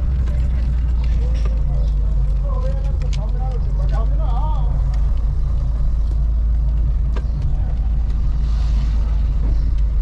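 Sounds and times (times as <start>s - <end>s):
car engine and road noise: 0.0s - 10.0s.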